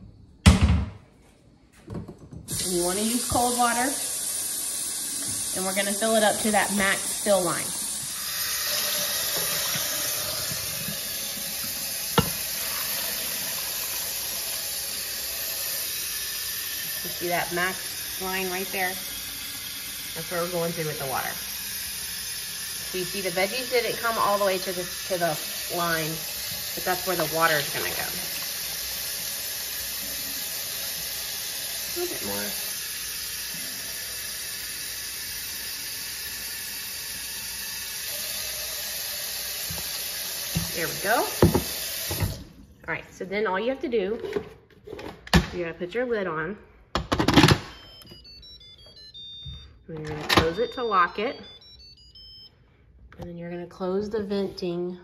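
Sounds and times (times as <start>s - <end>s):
water running from tap: 2.5s - 42.6s
water poured into metal pot: 2.6s - 42.3s.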